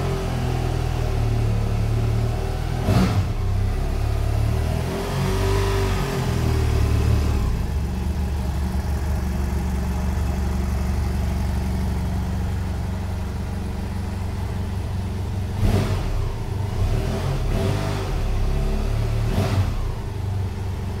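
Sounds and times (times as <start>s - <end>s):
motorcycle engine idling: 6.2s - 17.5s, 19.8s - 21.0s.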